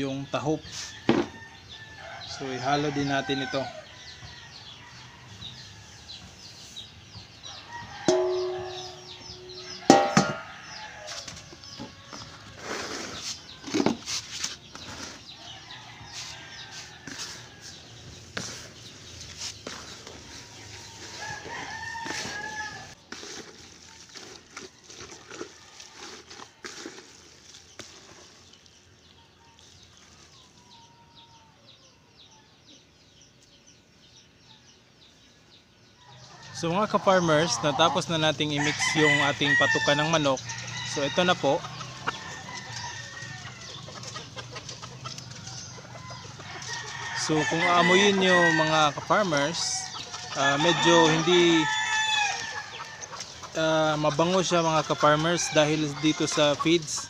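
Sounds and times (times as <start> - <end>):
chickens peeping: 0.0 - 23.0, 23.8 - 57.0
rooster crowing: 7.5 - 12.3, 20.9 - 23.0, 38.6 - 43.8, 45.7 - 53.1
hands mixing damp feed: 7.9 - 15.3, 16.0 - 28.9
metal basin clanking on bucket: 8.0 - 10.8.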